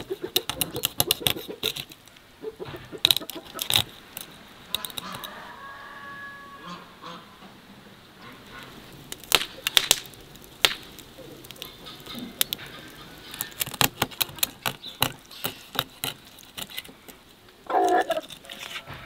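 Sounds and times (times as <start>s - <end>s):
sharp crackles and clicks: 0.0s - 5.4s, 8.2s - 19.0s.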